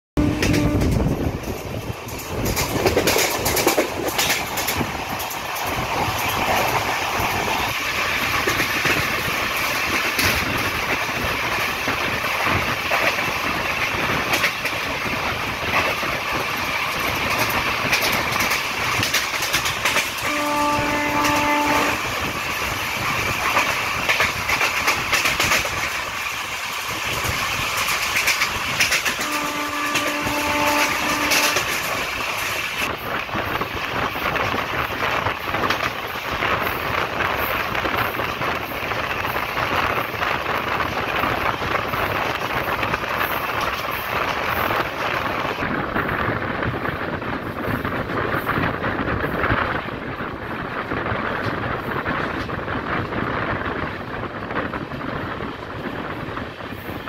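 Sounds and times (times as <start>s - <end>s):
train horn: 0.2s - 1.2s, 20.2s - 22.2s, 29.1s - 32.0s
train wind and wheels rushing: 0.2s - 57.0s
clicks from the track: 0.3s - 6.9s, 8.3s - 10.7s, 17.0s - 20.3s, 23.4s - 26.0s, 27.1s - 32.7s.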